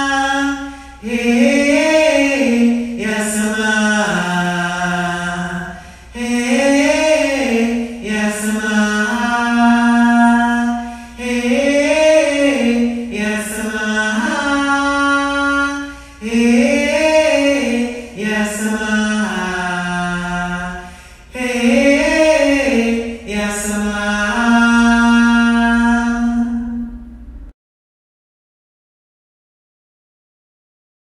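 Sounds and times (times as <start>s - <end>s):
person singing chant-like melody: 0.0s - 27.2s
breaths: 0.6s - 1.0s, 5.7s - 6.2s, 10.8s - 11.2s, 15.9s - 16.2s, 20.8s - 21.4s.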